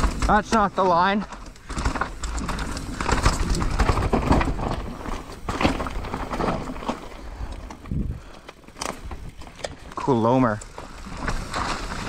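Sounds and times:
bike rattling over bumps: 0:00.0 - 0:12.0
bike tyres rolling on dirt: 0:00.0 - 0:12.0.

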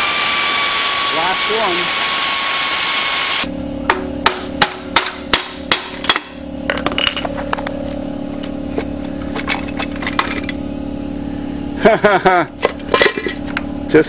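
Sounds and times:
steady low hum: 0:03.2 - 0:14.0
sharp metal knocks: 0:03.9 - 0:07.3.

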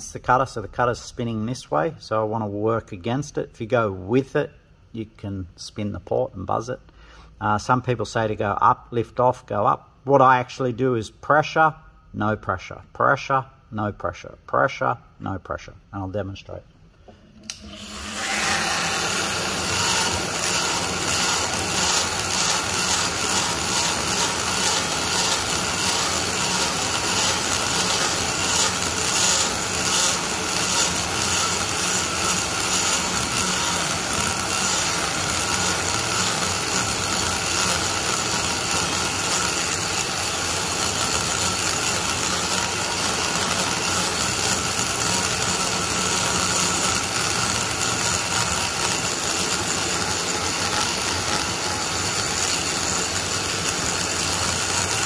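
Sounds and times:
die grinder cutting metal: 0:17.4 - 0:55.0.

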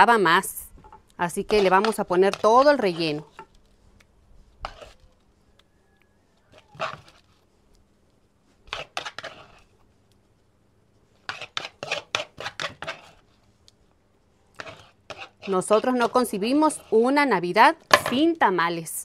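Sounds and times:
metal tongs scraping clay bowl: 0:00.8 - 0:03.7, 0:04.6 - 0:05.1, 0:06.5 - 0:07.3, 0:08.7 - 0:09.7, 0:11.2 - 0:13.2, 0:14.5 - 0:18.3.

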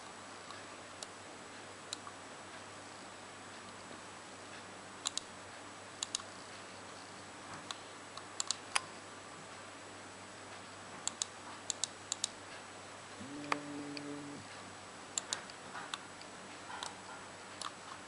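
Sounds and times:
faint steady hum: 0:00.0 - 0:18.0
computer mouse clicking: 0:05.0 - 0:05.3, 0:06.0 - 0:06.3, 0:07.6 - 0:08.8, 0:11.0 - 0:12.4, 0:13.3 - 0:14.2, 0:15.2 - 0:17.0.

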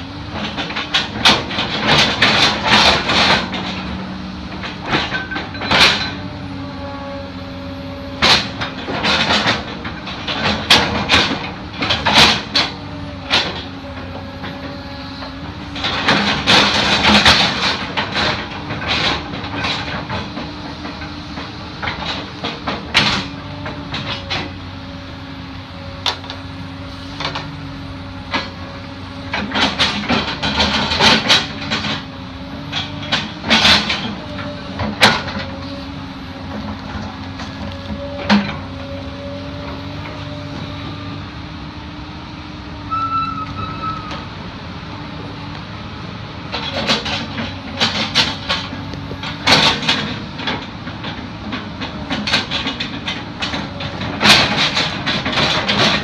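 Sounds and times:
excavator engine running: 0:00.0 - 0:56.0.

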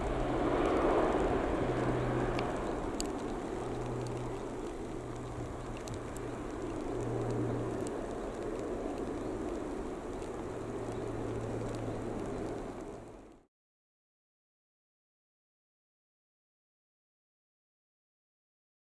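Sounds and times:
jet engines rumbling: 0:00.0 - 0:13.4.

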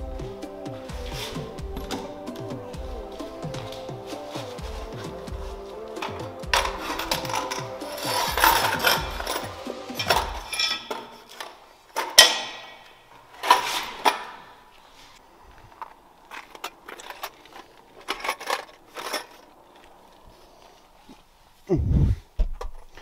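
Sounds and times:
rustling: 0:00.0 - 0:23.0
metal tools clinking on stone floor: 0:06.0 - 0:14.5, 0:15.7 - 0:20.0.

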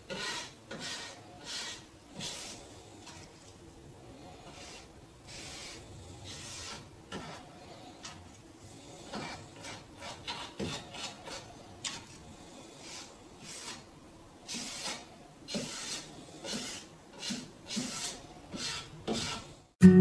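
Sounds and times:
paintbrush swishing strokes: 0:00.1 - 0:03.5, 0:04.4 - 0:08.2
guitar music: 0:19.8 - 0:20.0.

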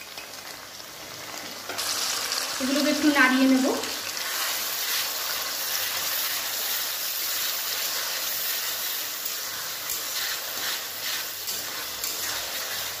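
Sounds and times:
onions sizzling in hot oil: 0:00.0 - 0:13.0
metal spatula scraping pan: 0:07.8 - 0:13.0.

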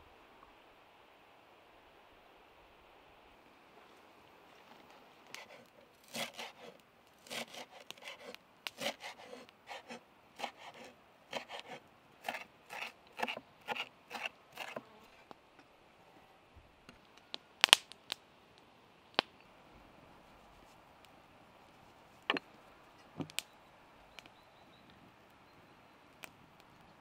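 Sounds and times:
knife chopping on wooden board: 0:06.1 - 0:14.8.

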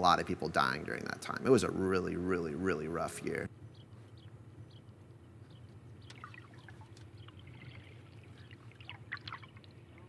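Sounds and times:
faint chirps and clicks: 0:03.7 - 0:10.0.

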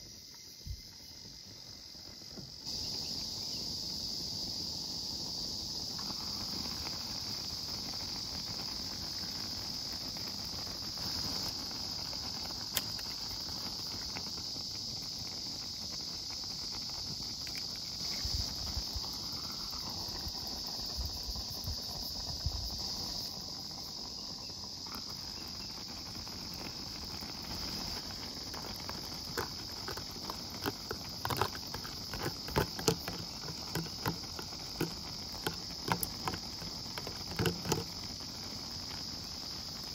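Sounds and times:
insects chirring: 0:00.0 - 0:39.9
light clicks and taps: 0:29.3 - 0:37.9.

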